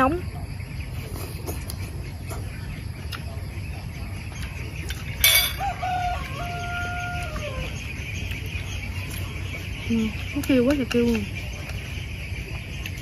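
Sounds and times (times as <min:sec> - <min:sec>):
rooster crowing: 0:05.3 - 0:07.8.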